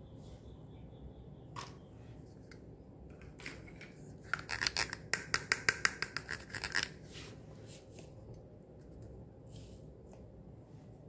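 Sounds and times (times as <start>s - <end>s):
plastic cups clicking: 3.1s - 7.0s.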